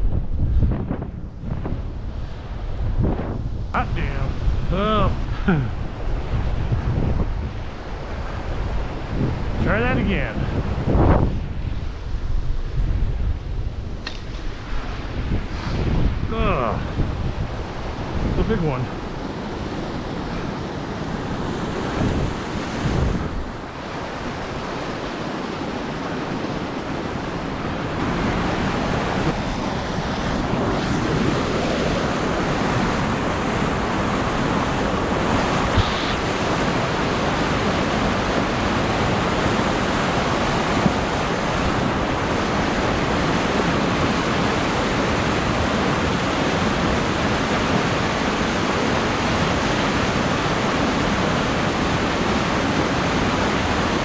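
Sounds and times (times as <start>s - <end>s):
white water rushing over dam: 13.8s - 54.0s.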